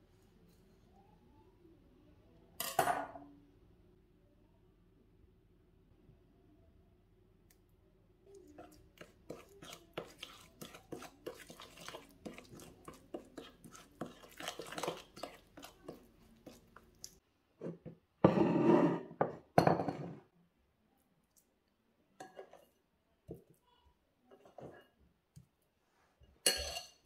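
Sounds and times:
fork scraping ceramic bowl: 0:08.5 - 0:17.2, 0:18.3 - 0:19.2.

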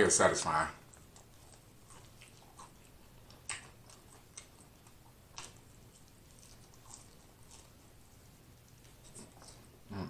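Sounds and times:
wet mouth chewing clicks: 0:00.8 - 0:08.0.

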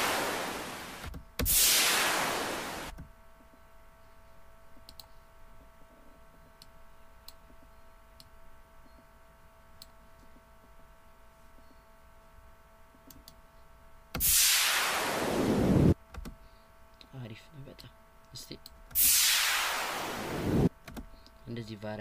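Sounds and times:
faint electrical hum: 0:00.0 - 0:22.0
synthesized white noise: 0:00.0 - 0:22.0
computer mouse clicks: 0:04.8 - 0:05.2.

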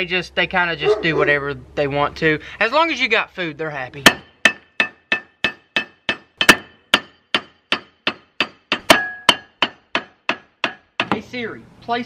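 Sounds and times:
hammer striking metal: 0:04.0 - 0:11.2.

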